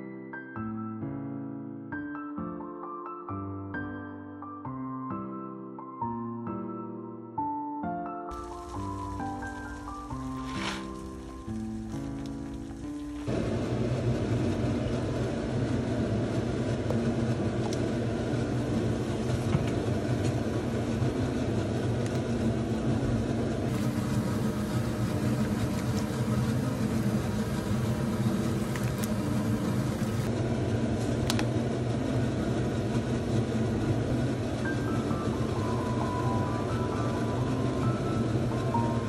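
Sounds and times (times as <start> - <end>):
water boiling in a pot: 8.3 - 22.4, 23.6 - 39.0.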